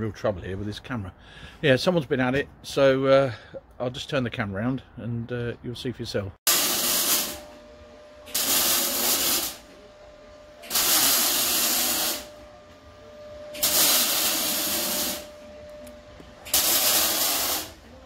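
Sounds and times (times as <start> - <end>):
loud hissing bursts: 6.5 - 7.5, 8.2 - 9.7, 10.6 - 12.4, 13.5 - 15.4, 16.4 - 17.9.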